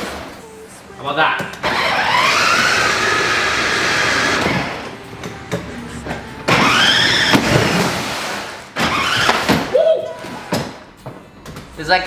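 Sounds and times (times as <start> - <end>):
electric toy truck motors whining: 1.6 - 7.8.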